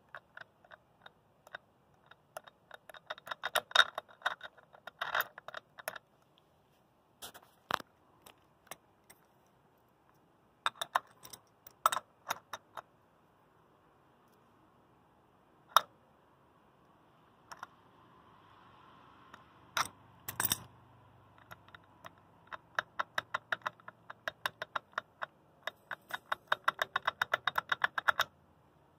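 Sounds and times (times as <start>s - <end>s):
wrench knocking on metal nut: 21.4s - 28.3s.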